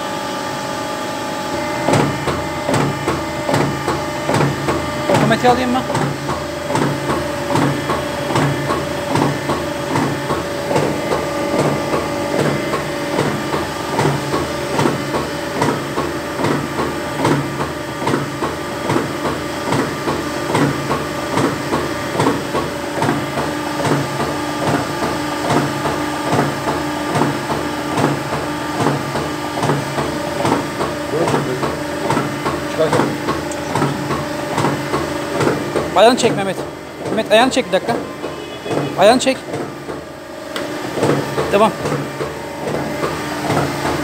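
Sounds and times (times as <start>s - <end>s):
hydraulic pump whine: 0.0s - 44.0s
hydraulic press stamping: 1.5s - 44.0s.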